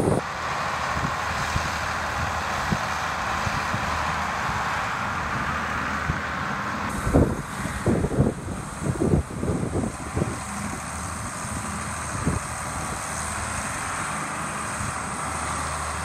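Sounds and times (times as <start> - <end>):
tractor diesel engine running: 0.0 - 16.0
wind buffeting microphone: 0.0 - 16.0.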